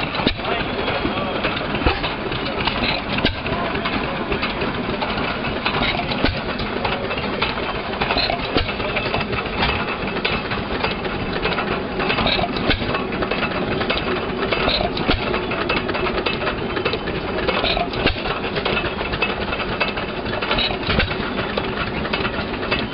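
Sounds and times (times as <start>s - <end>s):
gas engine clattering: 0.0s - 22.9s
sharp engine knock: 14.6s - 15.5s.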